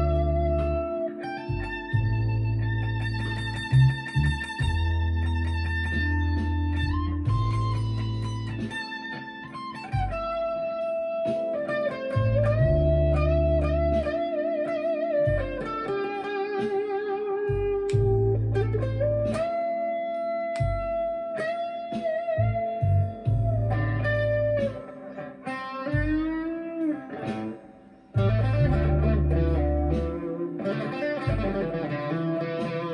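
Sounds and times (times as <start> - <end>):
low guitar chords: 0.0 - 32.9
overdriven electric guitar lead: 0.0 - 32.9.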